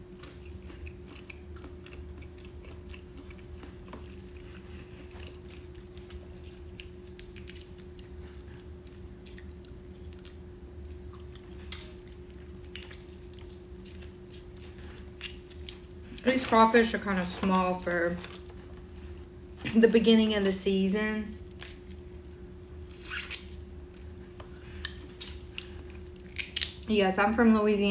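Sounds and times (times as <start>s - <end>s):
close chewing: 0.0s - 16.4s, 21.4s - 26.9s
steady low hum: 0.0s - 27.9s.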